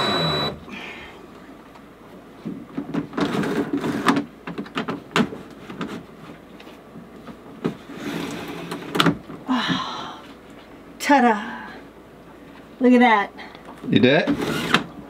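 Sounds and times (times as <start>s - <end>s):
cordless drill driving screws: 0.0s - 0.6s, 14.4s - 14.9s.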